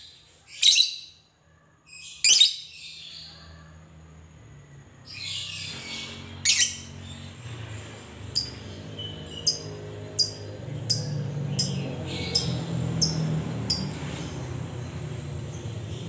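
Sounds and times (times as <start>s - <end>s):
bird ticking chirps: 8.3s - 13.9s.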